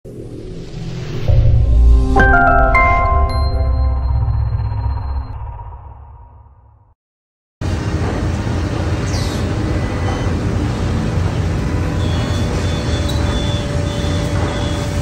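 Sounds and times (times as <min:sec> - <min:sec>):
woodworking machinery rumble: 0:07.6 - 0:15.0.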